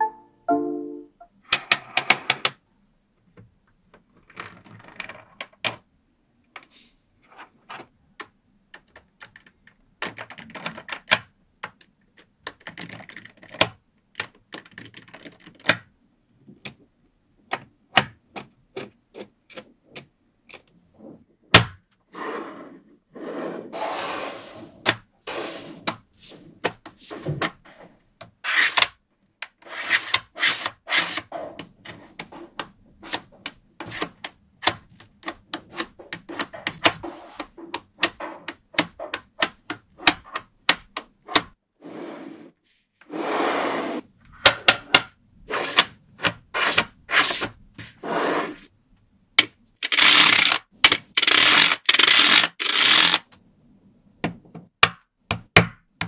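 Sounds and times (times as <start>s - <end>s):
balls rubbing and rolling on table: 4.2s - 5.6s, 20.8s - 21.4s, 22.1s - 28.8s, 29.5s - 34.2s, 34.9s - 40.4s, 41.2s - 48.8s.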